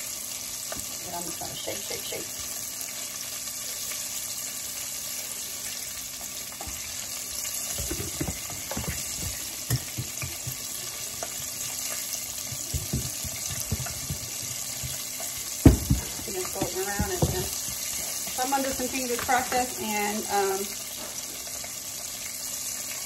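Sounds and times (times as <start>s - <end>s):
hot oil sizzling: 0.0s - 23.0s
kitchenware knocking: 7.7s - 11.4s, 12.4s - 17.8s.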